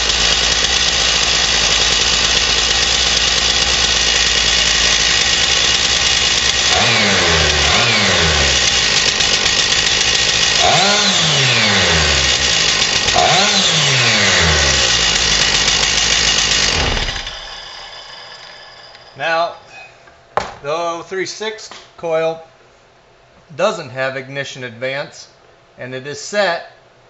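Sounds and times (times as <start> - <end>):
chainsaw engine idling and revving: 0.0 - 19.2.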